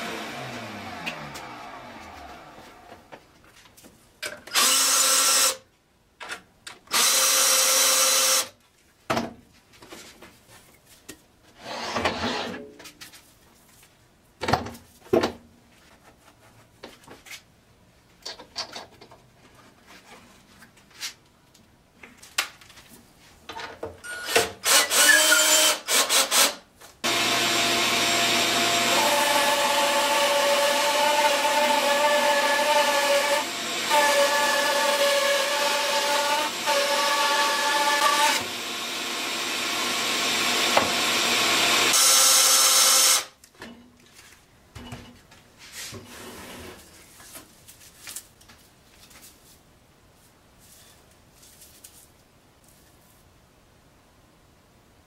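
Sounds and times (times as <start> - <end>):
cordless drill whirring: 4.5 - 5.6, 24.1 - 43.3
bandsaw motor humming: 27.0 - 42.5.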